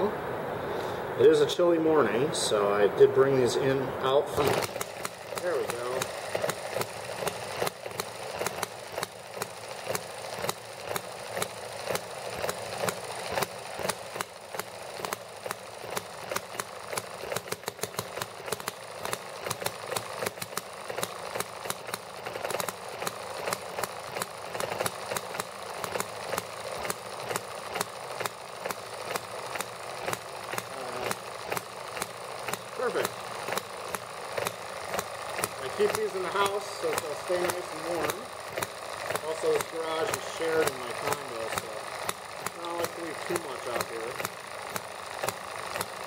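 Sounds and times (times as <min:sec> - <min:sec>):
rapid mechanical clicking: 0:03.6 - 0:46.0
model engine firing in pops: 0:04.3 - 0:46.0.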